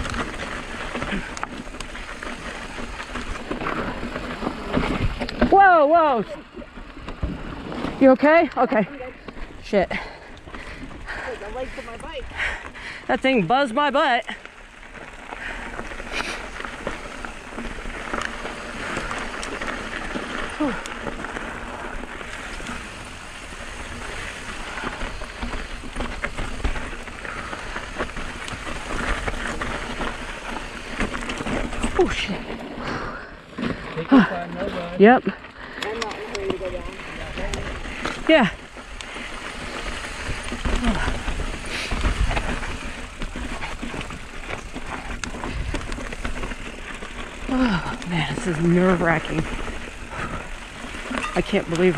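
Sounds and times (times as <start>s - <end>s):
bike tyres crunching on rocky trail: 0.0s - 51.9s
stones and bike rattling: 0.0s - 51.9s.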